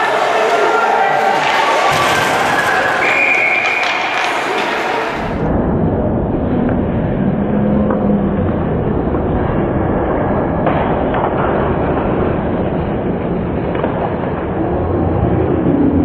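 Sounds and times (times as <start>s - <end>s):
low rumble of ice rink: 0.0s - 16.0s
hockey sticks and puck clicking: 2.6s - 5.2s, 10.6s - 12.8s, 13.5s - 14.6s.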